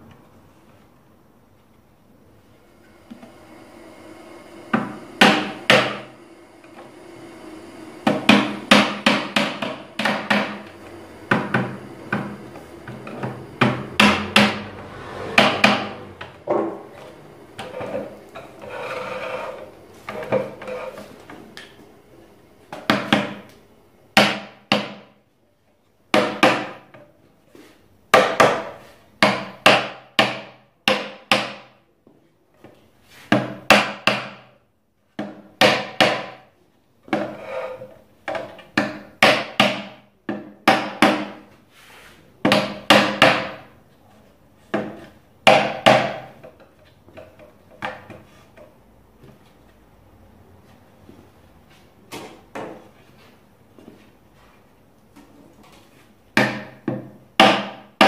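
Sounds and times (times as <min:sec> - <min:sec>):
hammer tapping wooden wedges: 0:08.1 - 0:14.6, 0:28.2 - 0:31.7, 0:38.3 - 0:41.5, 0:42.4 - 0:43.7, 0:56.4 - 0:57.9.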